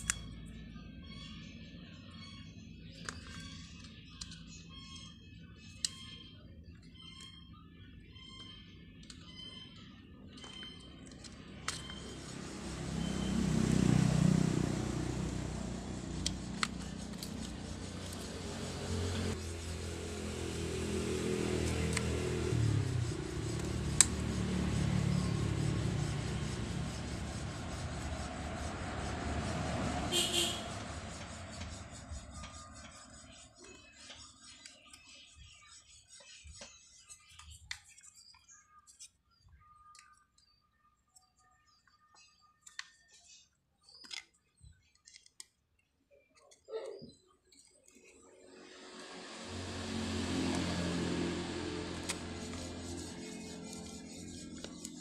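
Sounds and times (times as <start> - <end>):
passing vehicle engine rumble: 10.4 - 33.6, 48.2 - 55.0.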